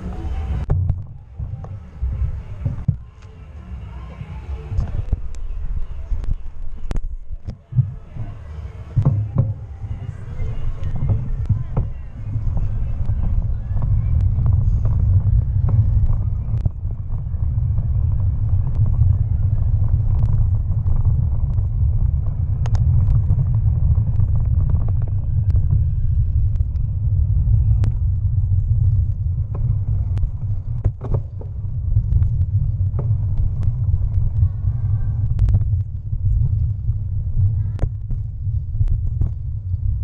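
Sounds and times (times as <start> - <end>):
bicycle rumbling on dirt path: 0.0 - 40.0
wind buffeting camera: 0.0 - 40.0
bike clicks and knocks: 27.8 - 34.4.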